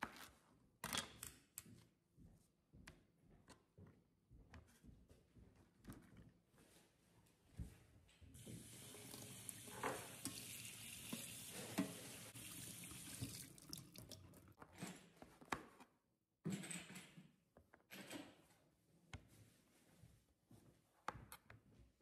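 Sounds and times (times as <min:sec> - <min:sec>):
tap running into metal sink: 0:08.4 - 0:14.5.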